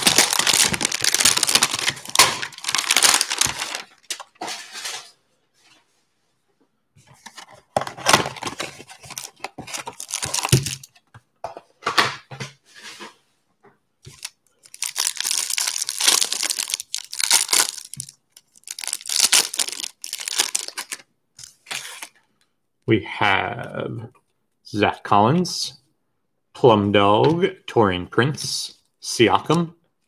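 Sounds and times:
cardboard box tearing: 0:00.0 - 0:03.8
plastic wrapper tearing and crinkling: 0:00.0 - 0:04.4, 0:08.4 - 0:10.9, 0:14.1 - 0:21.0.

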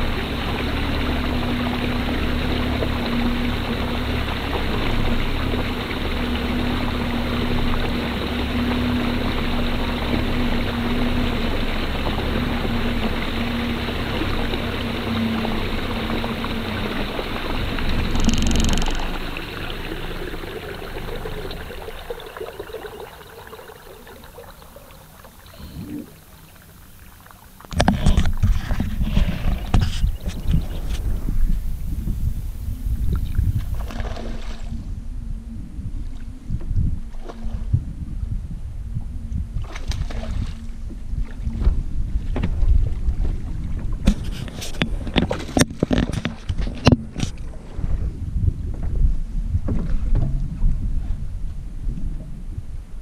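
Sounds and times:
wind buffeting microphone: 0:00.0 - 0:23.3, 0:27.7 - 0:53.0
water wash: 0:00.0 - 0:34.8
outboard motor hum: 0:00.0 - 0:53.0.

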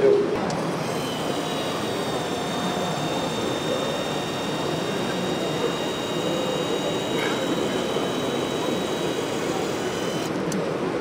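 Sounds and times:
high-pitched motor whine: 0:00.4 - 0:10.6.

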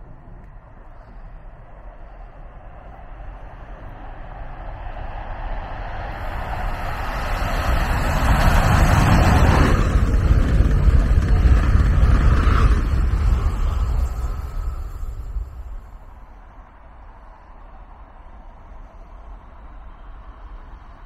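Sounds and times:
passenger train passing: 0:01.8 - 0:21.0
rushing hiss: 0:06.1 - 0:16.4.

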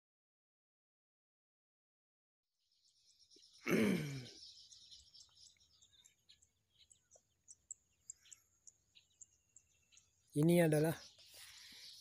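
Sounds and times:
high bird chirps: 0:02.6 - 0:12.0.

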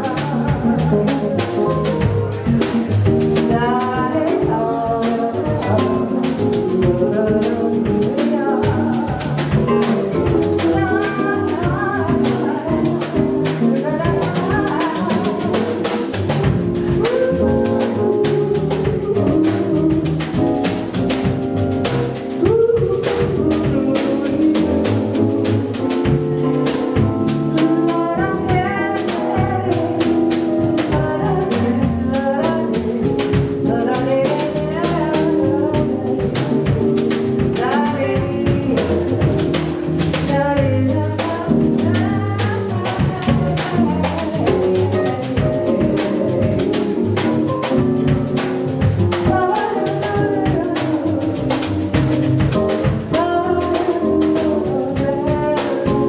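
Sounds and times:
woman singing: 0:00.0 - 0:21.3, 0:22.1 - 0:56.0
electric keyboard: 0:00.0 - 0:56.0
upright bass: 0:00.0 - 0:56.0.

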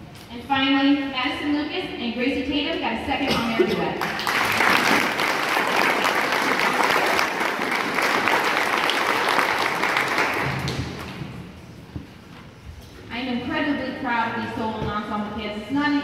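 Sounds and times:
audience applause: 0:04.0 - 0:11.3.

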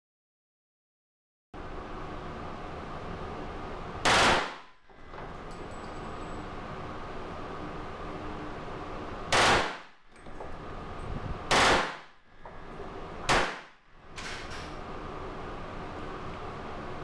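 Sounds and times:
automatic pistol bursts: 0:09.3 - 0:09.9, 0:11.5 - 0:12.2.

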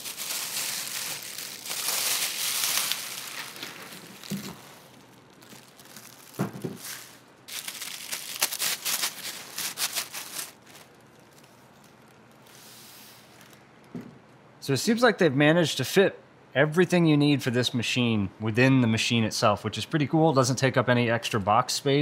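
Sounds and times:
plastic bag crinkling: 0:00.0 - 0:12.6, 0:13.2 - 0:13.8.

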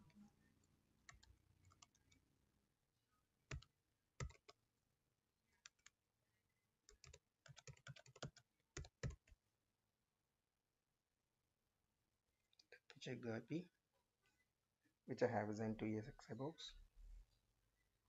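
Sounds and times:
computer keyboard typing: 0:01.1 - 0:02.2, 0:03.5 - 0:04.6, 0:05.6 - 0:05.9, 0:06.9 - 0:09.3.

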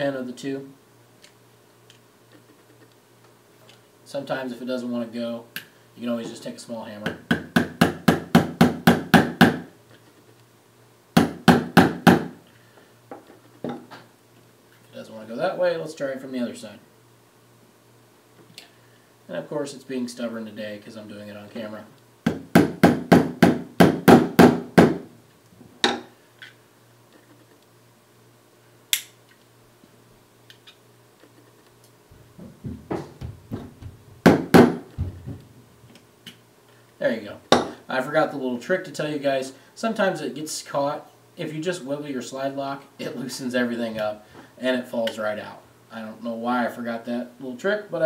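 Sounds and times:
low knocks on work mat: 0:32.4 - 0:35.5.

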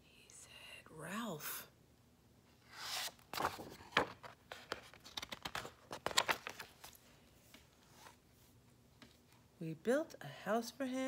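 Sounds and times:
paper page turning: 0:02.7 - 0:07.0.

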